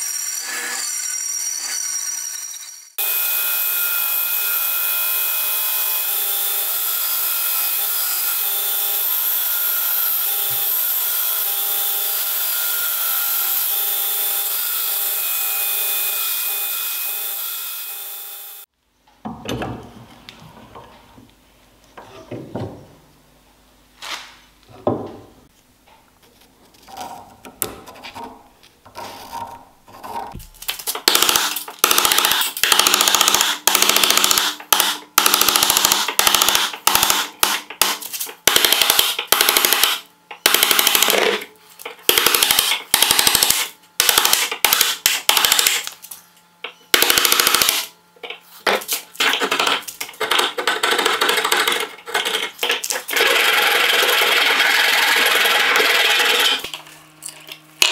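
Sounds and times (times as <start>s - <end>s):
hand tools scraping wood: 26.7s - 30.4s.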